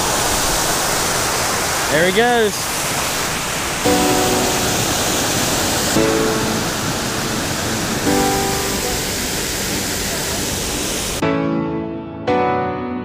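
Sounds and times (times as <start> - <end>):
creek and waterfall rushing: 0.0 - 11.2
soft instrumental chords: 3.9 - 13.0.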